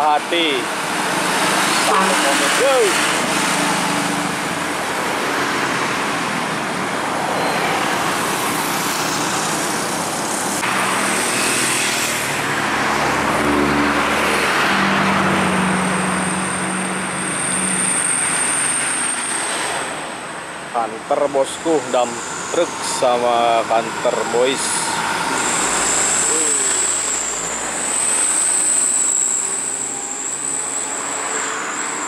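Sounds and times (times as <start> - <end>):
vehicles passing: 0.0 - 32.0
thin high whine: 20.8 - 32.0.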